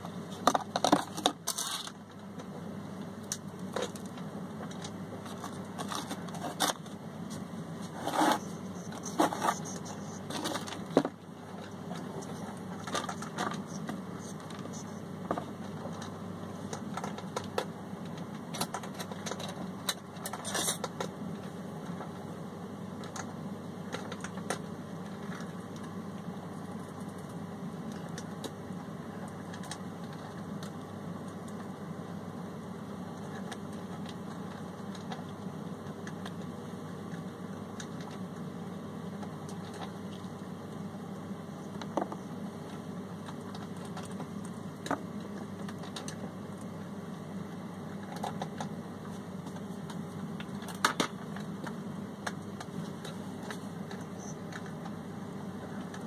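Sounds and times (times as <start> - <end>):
low background hum: 0.0 - 56.0
small clicks and crackles: 0.4 - 22.1, 23.0 - 31.8, 33.1 - 38.5, 39.1 - 56.0.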